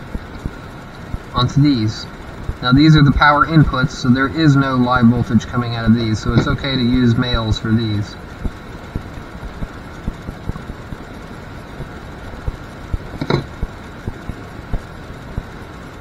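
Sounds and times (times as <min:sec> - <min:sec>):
steady background hum: 0:00.0 - 0:16.0
clicks and taps handling wires: 0:06.3 - 0:06.6, 0:13.2 - 0:13.5.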